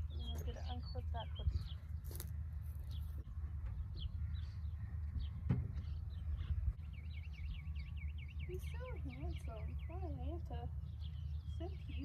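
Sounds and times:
wind rumbling on microphone: 0.0 - 12.0
bird chirps: 2.8 - 12.0.

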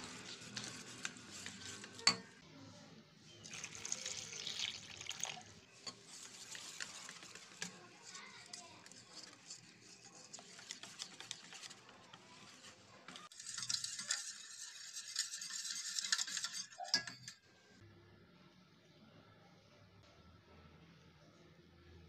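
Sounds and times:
whisk beating in metal bowl: 0.0 - 2.4, 5.2 - 17.4.

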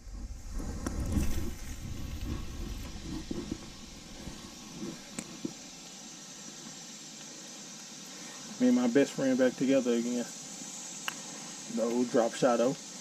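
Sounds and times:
handling noise rumbling and rustling: 0.0 - 5.7
steady hiss: 0.0 - 13.0
faint clicks: 11.0 - 11.3.

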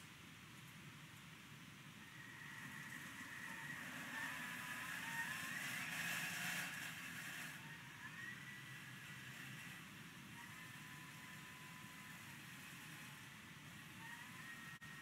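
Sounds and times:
blender motor whining: 2.2 - 13.3.

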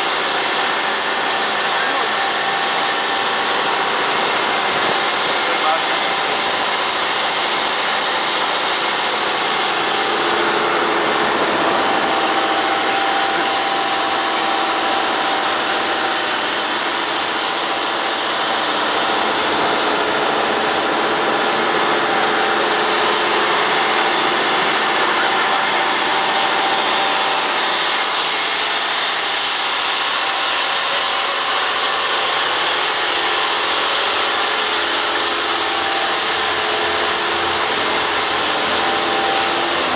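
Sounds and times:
boat engine running: 0.0 - 39.9
water rushing along hull: 0.0 - 39.9.

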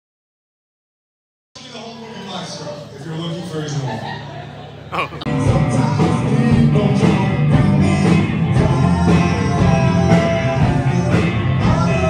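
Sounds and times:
guitar: 4.9 - 12.0
person singing: 5.0 - 12.0
live rock band playing: 5.3 - 12.0.

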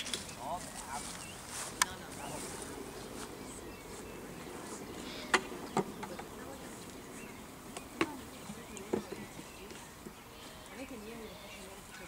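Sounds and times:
faint distant voices: 0.0 - 12.0.

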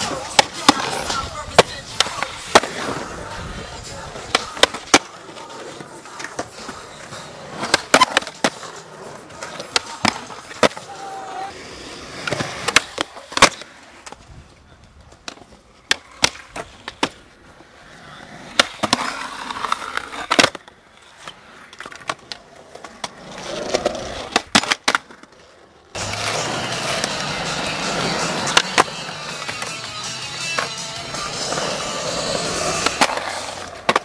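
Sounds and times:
skateboard pops and clacks: 0.0 - 3.0, 4.2 - 11.0, 12.2 - 14.2, 15.0 - 17.2, 18.5 - 25.4, 27.9 - 30.8, 32.6 - 34.0
skateboard wheels rolling: 0.0 - 34.0
music: 26.0 - 33.6.

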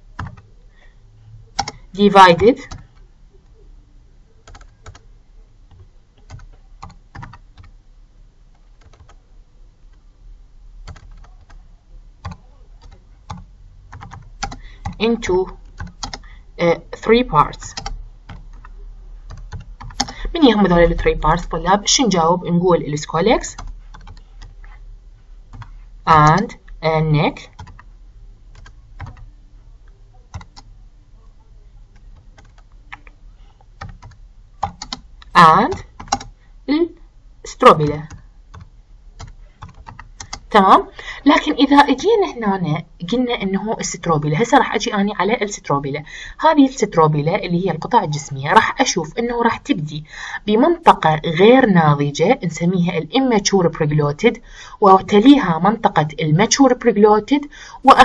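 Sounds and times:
typing on computer keyboard: 0.1 - 0.5, 1.6 - 1.8, 2.6 - 3.0, 4.4 - 5.1, 5.7 - 7.7, 8.5 - 9.2, 10.8 - 11.6, 12.2 - 16.3, 17.7 - 18.7, 19.3 - 20.2, 23.5 - 24.6, 25.5 - 25.8, 27.5 - 27.9, 28.5 - 29.3, 30.3 - 30.7, 31.9 - 33.1, 33.8 - 35.0, 35.7 - 36.4, 38.0 - 40.5.

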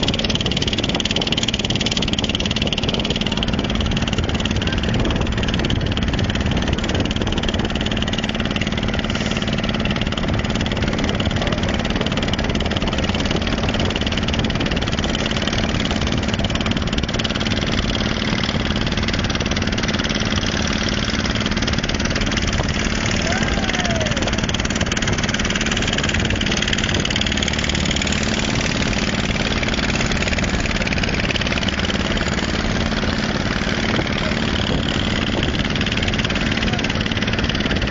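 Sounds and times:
boat engine running: 0.0 - 37.9
rushing water noise: 0.0 - 37.9.

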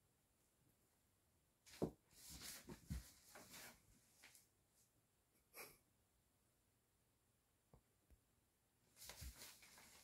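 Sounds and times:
hamper rustling and scuffing on floor: 1.7 - 4.4, 9.0 - 10.0.

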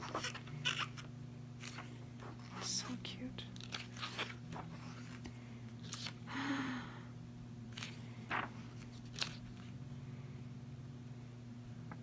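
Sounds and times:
paper rustling: 0.0 - 3.0, 3.6 - 6.2, 7.7 - 9.7
steady low hum: 0.0 - 12.0.

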